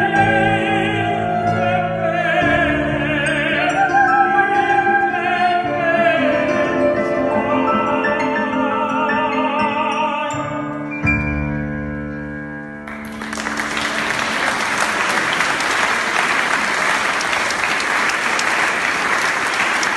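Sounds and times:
applause: 12.9 - 19.9.

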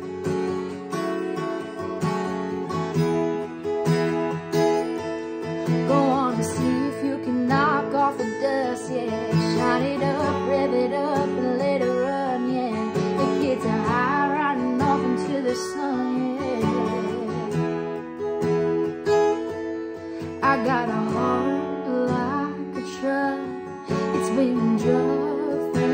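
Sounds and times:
acoustic guitar strumming: 0.0 - 25.9
woman singing: 5.6 - 18.0, 20.2 - 25.9.

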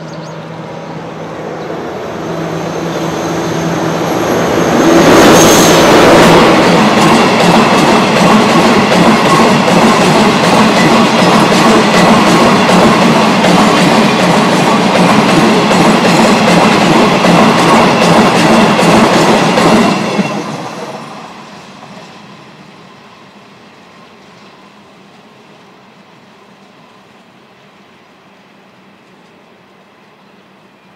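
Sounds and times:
faint train rumble: 0.0 - 30.9
freight train wheels clattering: 4.0 - 20.9.

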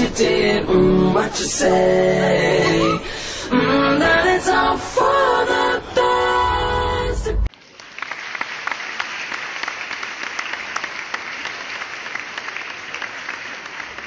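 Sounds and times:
audience applause: 7.5 - 14.0.

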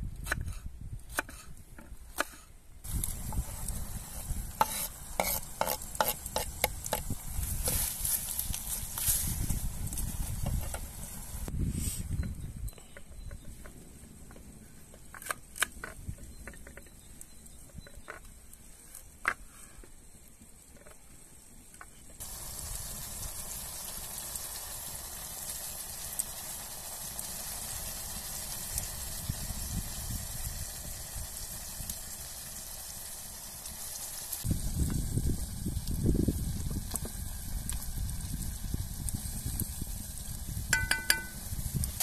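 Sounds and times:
food sizzling in a pot: 2.8 - 11.5, 22.2 - 42.0.

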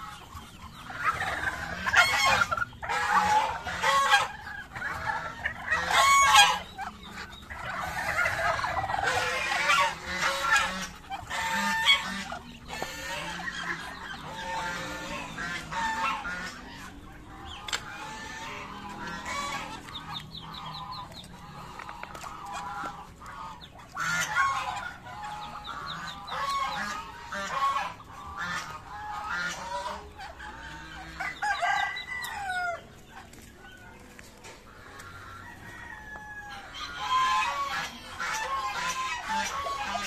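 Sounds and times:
chickens clucking: 0.0 - 40.0
rooster crowing: 31.2 - 32.9, 35.4 - 36.8.

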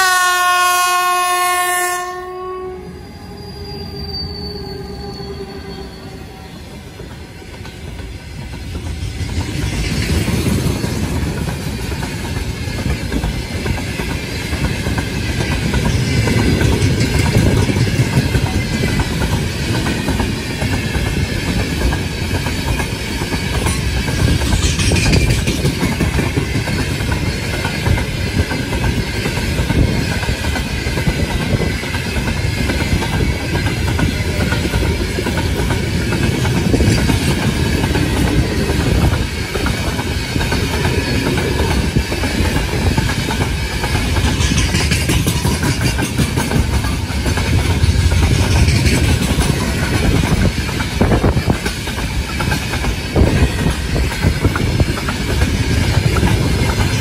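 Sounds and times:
freight train rumbling past: 0.0 - 57.0
high-pitched wheel squeal: 2.4 - 7.1
wheels clacking over rail joints: 7.1 - 57.0.

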